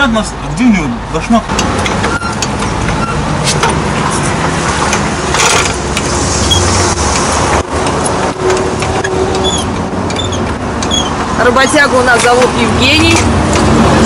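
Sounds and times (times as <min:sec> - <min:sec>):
rumble of motor vehicles: 0:00.0 - 0:14.0
metal knocks and scrapes: 0:01.5 - 0:11.3.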